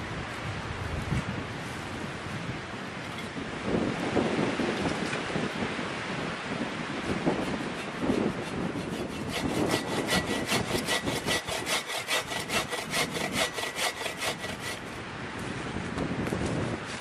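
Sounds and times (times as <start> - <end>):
hand saw cutting wood: 7.2 - 15.0.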